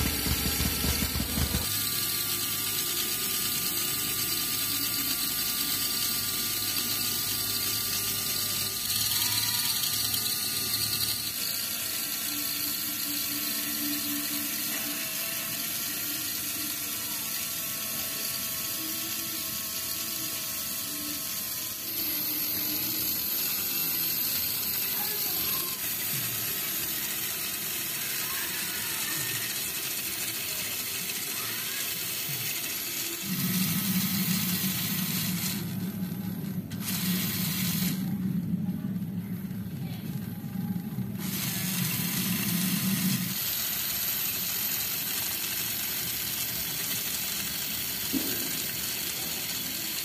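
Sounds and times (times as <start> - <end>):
electric motor whirring: 0.0 - 50.0
low hum: 33.2 - 41.2.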